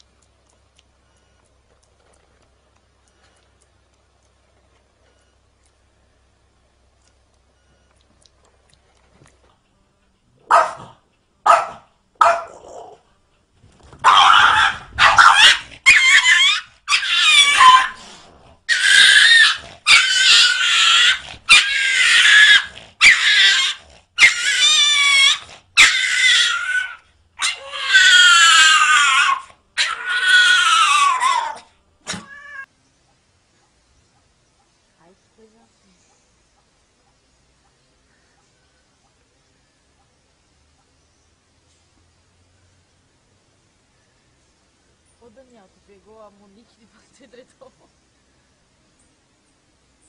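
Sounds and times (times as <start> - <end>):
small dog yelping: 10.5 - 10.9, 11.5 - 12.9, 14.0 - 18.0, 18.7 - 32.7
dog crying: 14.0 - 18.0, 18.7 - 32.7.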